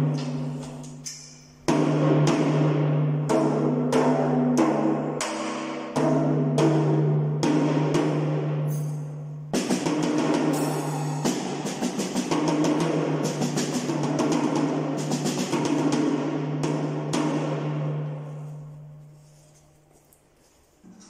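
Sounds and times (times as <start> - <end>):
cymbal wash: 0.0 - 18.8
tom drum strokes ringing: 5.9 - 17.9
fast drum run: 9.6 - 17.8.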